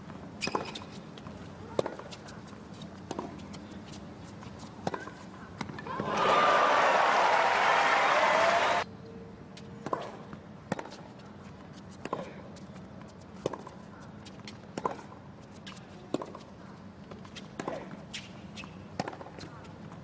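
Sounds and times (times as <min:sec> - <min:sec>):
tennis ball bouncing on court: 0:00.1 - 0:06.3, 0:09.8 - 0:11.2, 0:13.4 - 0:20.0
hushed stadium crowd: 0:05.9 - 0:08.8.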